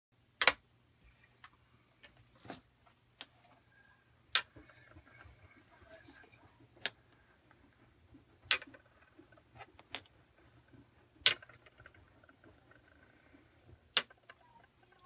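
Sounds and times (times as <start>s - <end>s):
small objects clicking on scale: 8.4s - 15.0s.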